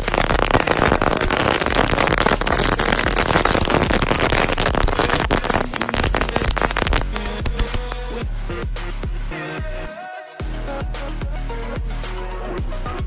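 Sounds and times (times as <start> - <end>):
firecrackers crackling: 0.0 - 8.2.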